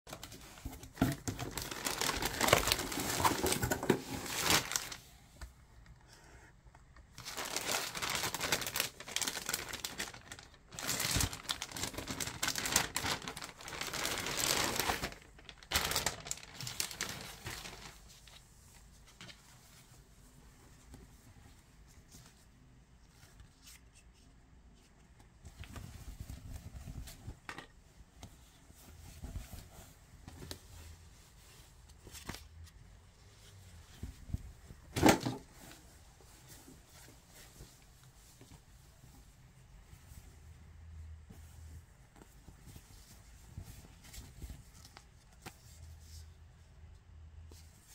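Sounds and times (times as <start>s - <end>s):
plastic packaging crinkling: 0.1s - 5.0s, 7.1s - 18.4s
soft handling of fabric: 0.1s - 47.9s.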